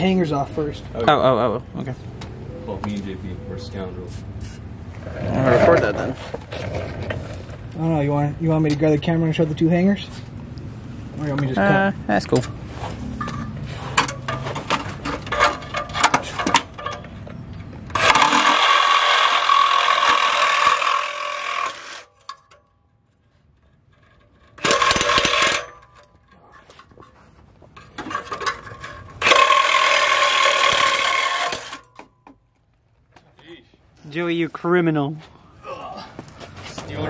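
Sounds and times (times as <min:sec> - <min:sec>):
power tool cutting metal: 0:18.0 - 0:22.1, 0:29.2 - 0:31.8.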